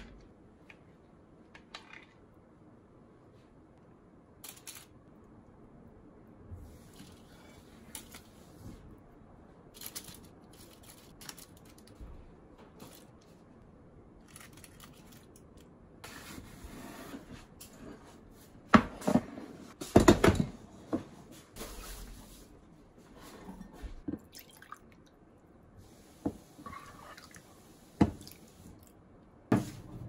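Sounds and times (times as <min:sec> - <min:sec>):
foil crinkling: 0:09.7 - 0:12.0.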